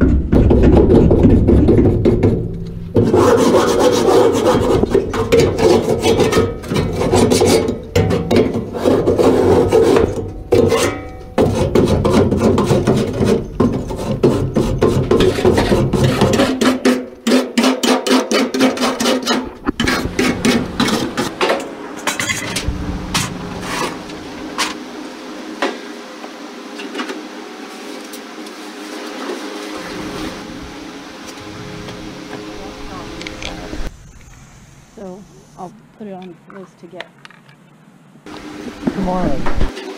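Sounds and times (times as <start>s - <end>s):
wire brush scraping metal: 2.7s - 24.8s, 28.9s - 33.9s.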